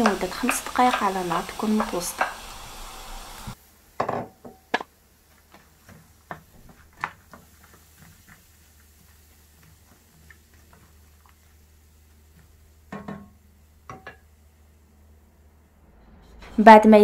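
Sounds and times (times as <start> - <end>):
wooden spoon tapping frying pan: 0.0 - 2.5, 4.0 - 14.3.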